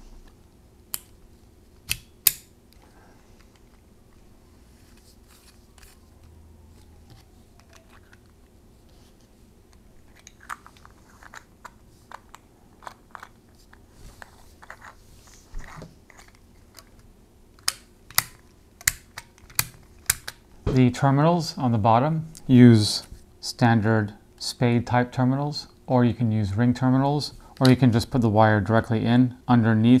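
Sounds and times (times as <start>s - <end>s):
plastic parts clicking and rubbing: 3.4s - 4.2s, 7.0s - 9.0s, 9.7s - 20.4s.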